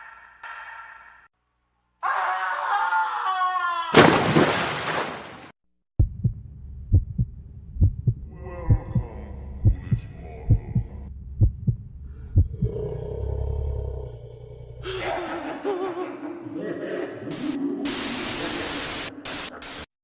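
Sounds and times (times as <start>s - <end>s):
man screaming: 2.0s - 4.0s
heartbeat sound effect: 6.0s - 12.8s
loud burst of noise: 17.3s - 19.9s.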